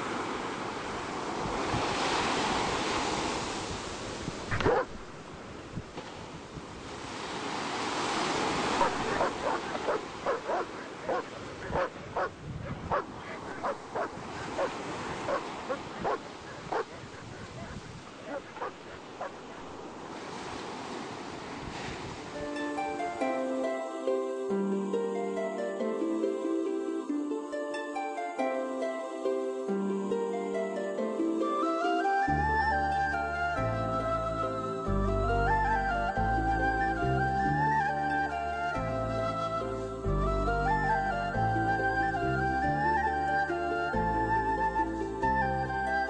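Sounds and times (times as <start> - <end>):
surf washing: 0.0 - 37.0
dog barking: 4.6 - 5.0, 8.8 - 19.7.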